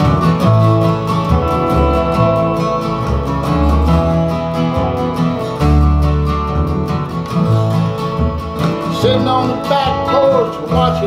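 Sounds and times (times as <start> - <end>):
acoustic guitars strumming: 0.0 - 11.0
plucked double bass: 0.0 - 11.0.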